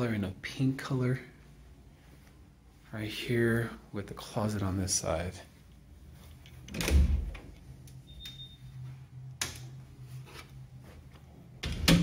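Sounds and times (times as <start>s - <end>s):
low steady hum: 0.0s - 12.0s
door thumping open: 6.7s - 7.4s.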